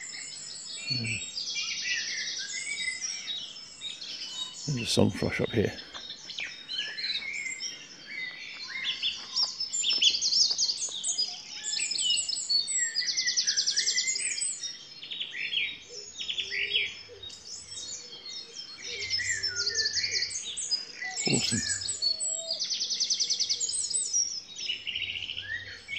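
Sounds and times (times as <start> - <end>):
songbirds singing: 0.0 - 25.9
rapid bird trill: 18.9 - 22.6.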